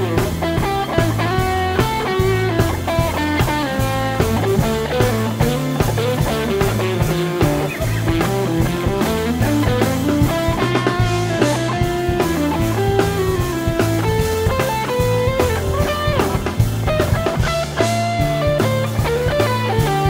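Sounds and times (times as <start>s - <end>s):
bass guitar: 0.0s - 20.0s
drum kit: 0.0s - 20.0s
lead electric guitar melody: 0.0s - 20.0s.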